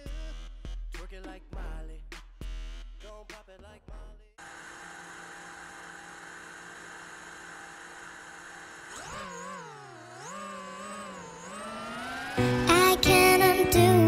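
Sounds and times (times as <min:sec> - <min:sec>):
drone motors whining: 0:04.4 - 0:13.9.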